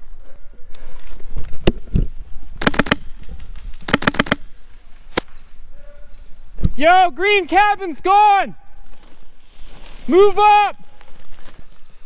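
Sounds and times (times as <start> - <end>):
airsoft rifle shots: 2.6 - 3.2, 3.8 - 5.3.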